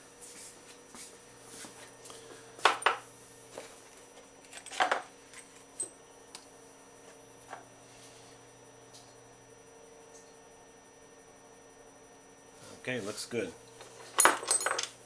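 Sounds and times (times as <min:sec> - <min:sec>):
metal tools clinking on workbench: 0:04.5 - 0:05.9, 0:13.8 - 0:15.0.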